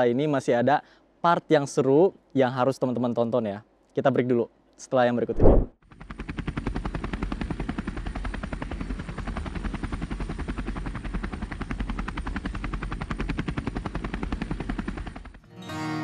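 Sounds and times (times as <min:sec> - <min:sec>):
helicopter rotor chopping: 0:05.4 - 0:15.4.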